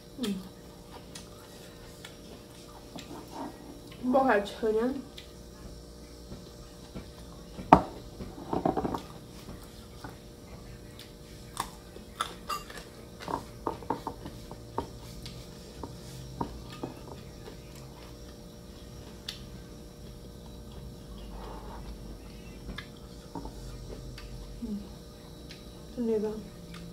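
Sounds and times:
spoons clinking against bowls: 12.2s - 14.1s.

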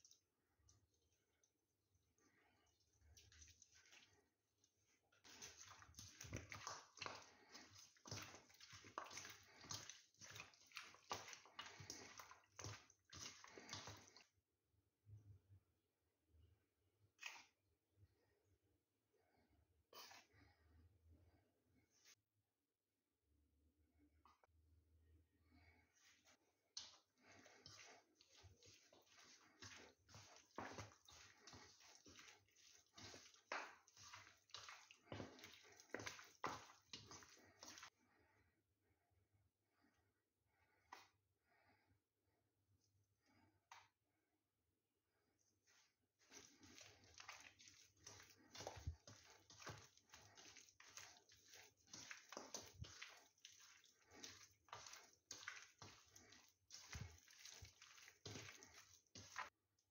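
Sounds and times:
hand squishing chicken in flour: 0.0s - 14.4s, 25.5s - 38.2s, 45.5s - 59.9s.

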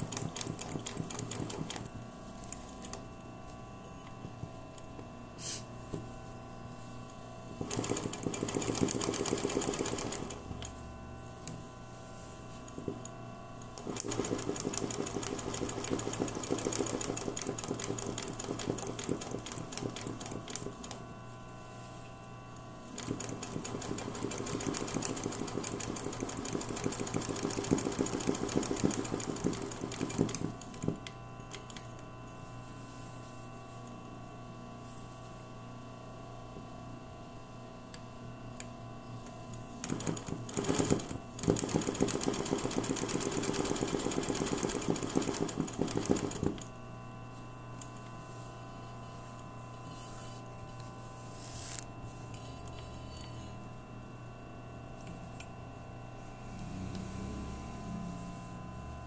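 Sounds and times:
sewing machine stitching: 0.0s - 1.9s, 7.6s - 10.5s, 13.8s - 21.0s, 23.0s - 31.0s, 39.8s - 46.7s.

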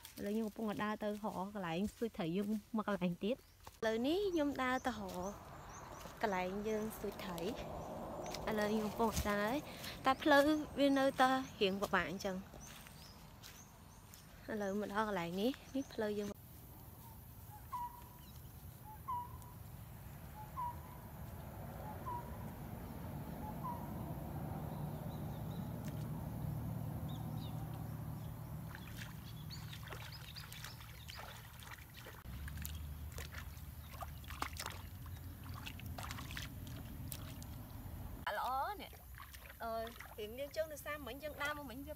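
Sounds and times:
water sloshing around legs: 4.4s - 16.3s, 25.1s - 41.9s
small splashes and drips: 25.4s - 26.8s, 27.6s - 41.0s.

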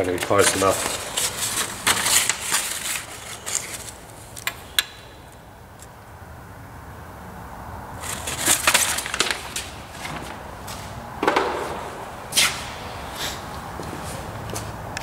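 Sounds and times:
paper rustling: 0.0s - 4.4s, 8.0s - 10.9s.

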